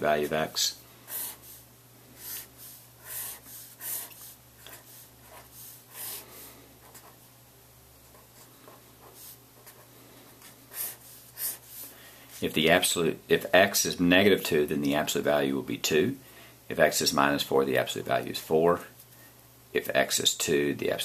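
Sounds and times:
faint low hum: 0.0s - 21.0s
marker scratching on paper: 1.1s - 1.6s, 2.2s - 6.2s, 6.8s - 7.2s, 8.1s - 11.9s.

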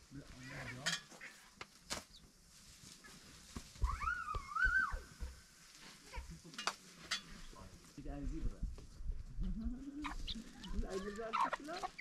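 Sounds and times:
high wavering animal call: 3.8s - 5.0s.

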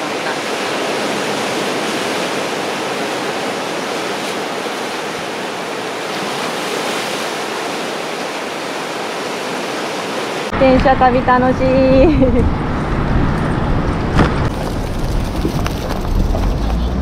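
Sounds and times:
waves breaking on beach: 0.0s - 12.4s.

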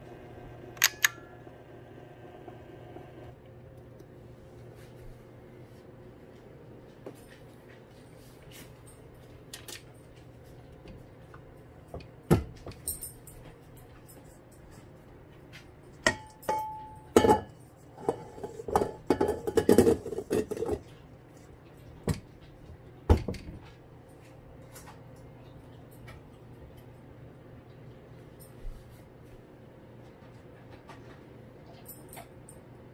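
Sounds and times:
bowl ringing: 0.8s - 1.7s, 16.1s - 17.5s
metal bowl clanking: 16.1s - 20.8s.

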